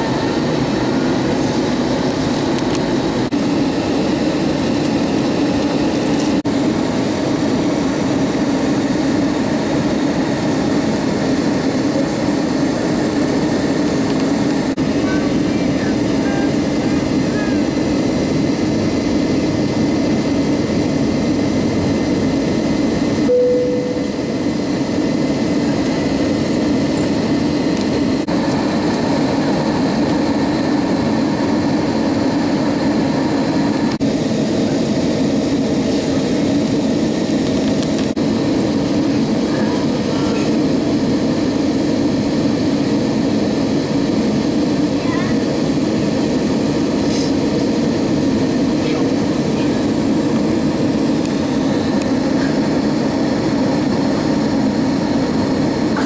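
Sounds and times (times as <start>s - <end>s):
airplane cabin rumble: 0.0s - 56.0s
brief single tone: 23.3s - 24.4s.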